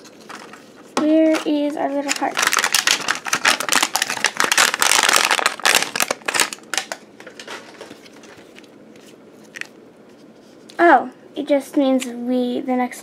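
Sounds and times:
crinkly wrapping being torn: 0:01.8 - 0:08.7.

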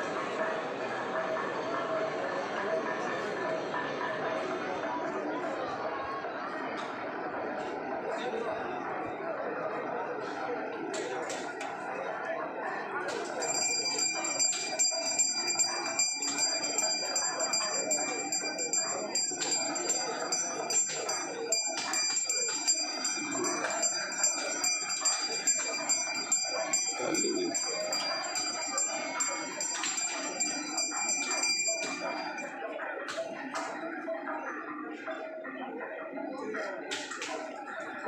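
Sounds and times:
murmur of voices: 0:00.0 - 0:38.0
bell ringing rapidly: 0:13.4 - 0:32.5.

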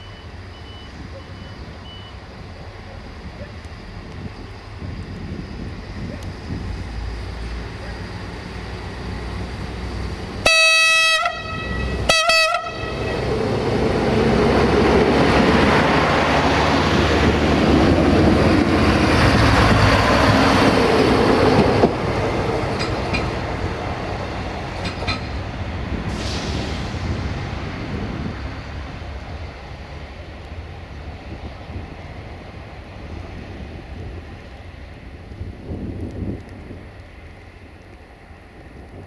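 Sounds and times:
train engine and wheels rumbling: 0:00.0 - 0:39.0
train horn toots: 0:10.4 - 0:13.3.

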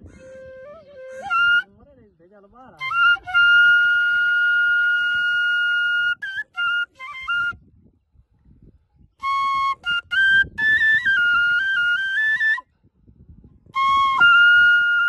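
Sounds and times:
flute melody: 0:00.0 - 0:01.8, 0:02.8 - 0:07.7, 0:09.2 - 0:12.7, 0:13.7 - 0:15.0.

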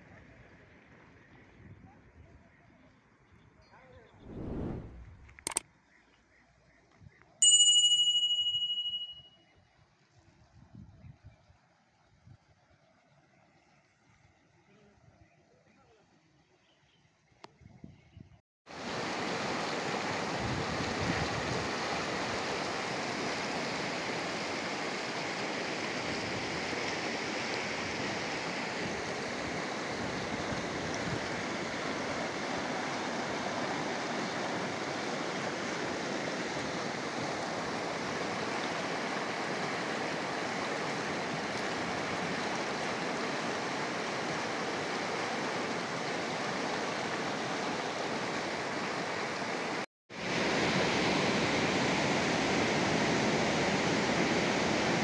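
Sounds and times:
river rushing over rocks: 0:18.8 - 0:55.0.

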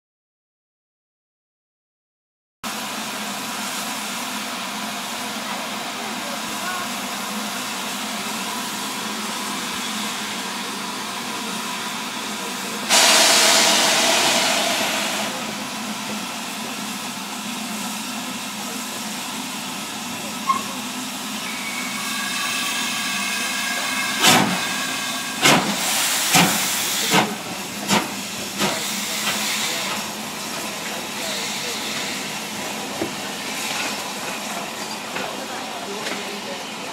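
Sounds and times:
steam locomotive chuffing: 0:02.7 - 0:36.9
steam hissing: 0:12.9 - 0:17.3, 0:21.8 - 0:35.1.

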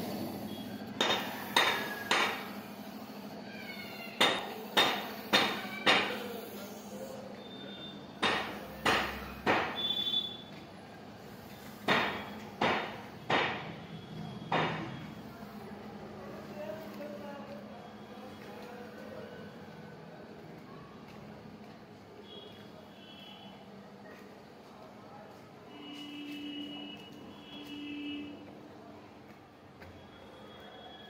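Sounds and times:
hammer blows: 0:00.5 - 0:02.6, 0:04.2 - 0:06.6, 0:08.2 - 0:10.4, 0:11.6 - 0:13.9.

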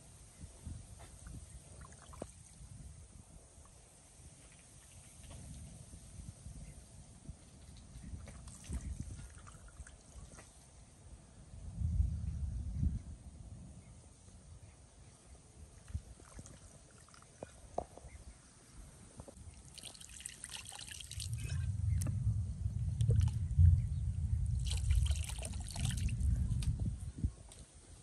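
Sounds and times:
water trickling and splashing: 0:01.2 - 0:02.9, 0:07.6 - 0:10.8, 0:15.8 - 0:17.8, 0:19.3 - 0:22.2, 0:22.8 - 0:26.7
low rumble: 0:21.2 - 0:27.3.

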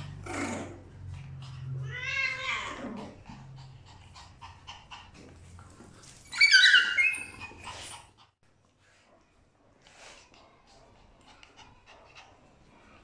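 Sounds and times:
high-pitched squealing cry: 0:06.3 - 0:07.8.

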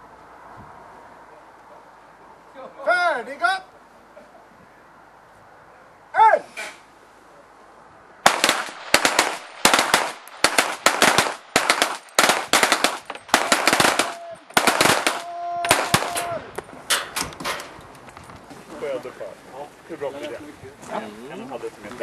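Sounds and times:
pistol shots: 0:08.2 - 0:16.3.

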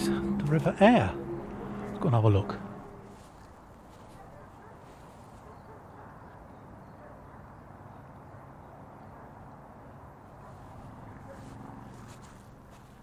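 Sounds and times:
low outdoor rumble: 0:00.0 - 0:04.5
soft footsteps on grass: 0:03.0 - 0:05.7, 0:11.3 - 0:13.0.

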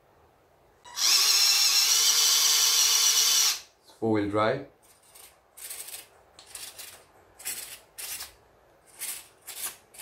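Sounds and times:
small electric motors whirring: 0:00.9 - 0:03.7.

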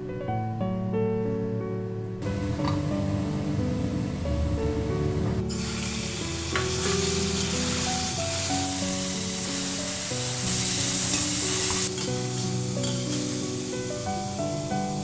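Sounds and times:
background music: 0:00.0 - 0:15.0
meat sizzling in hot oil: 0:05.5 - 0:15.0.

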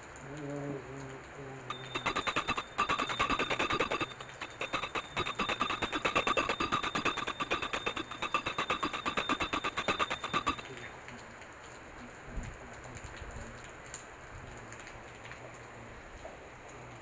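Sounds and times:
hand bell rung rapidly: 0:01.7 - 0:10.7.

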